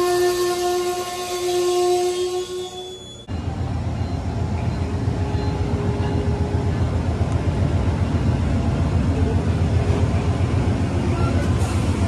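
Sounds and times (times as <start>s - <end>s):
train wheels rumbling on rails: 3.3s - 12.0s.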